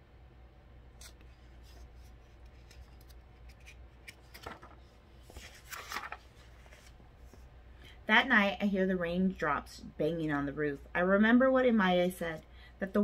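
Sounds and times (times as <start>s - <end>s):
page turning rustle: 1.0s - 7.4s.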